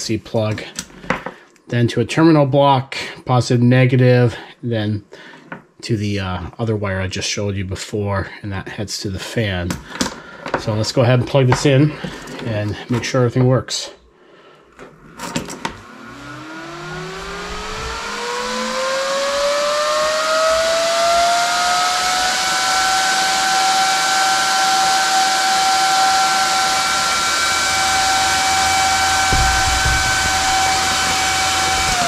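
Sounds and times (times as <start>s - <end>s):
cooling fan whine: 15.7s - 32.0s.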